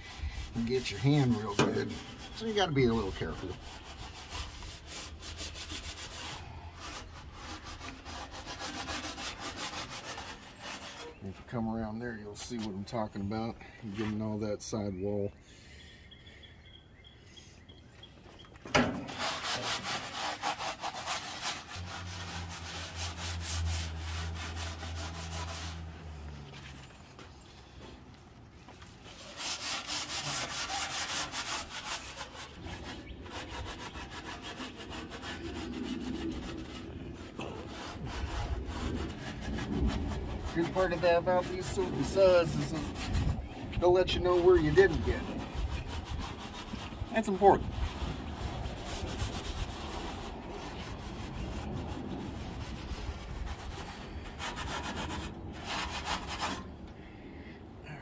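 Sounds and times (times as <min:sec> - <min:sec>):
steel wool scrubbing metal: 0:00.0 - 0:11.4, 0:18.8 - 0:26.9, 0:29.0 - 0:56.7.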